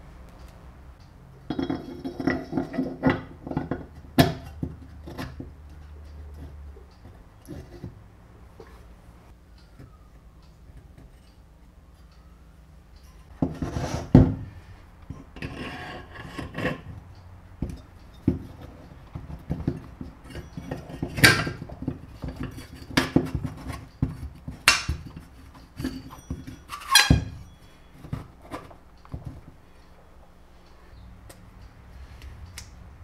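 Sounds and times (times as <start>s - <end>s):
metal tools knocking and scraping: 1.4s - 8.0s, 13.0s - 30.0s
ringing metal clanks: 19.7s - 22.9s, 24.6s - 28.3s.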